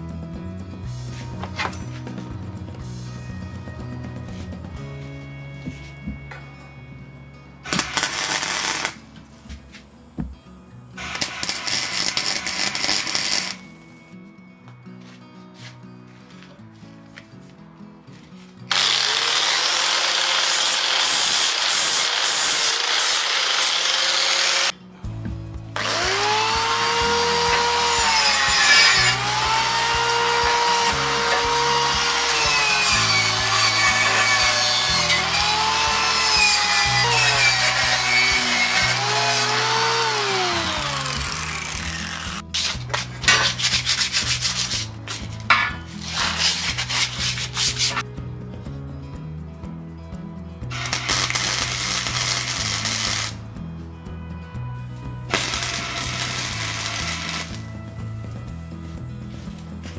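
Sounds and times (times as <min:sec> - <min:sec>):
angle grinder grinding steel: 0:07.7 - 0:09.0, 0:11.0 - 0:14.2, 0:18.7 - 0:24.7, 0:25.8 - 0:48.0, 0:50.8 - 0:53.4, 0:55.3 - 0:57.8
hand sanding on metal tube: 0:41.9 - 0:48.0.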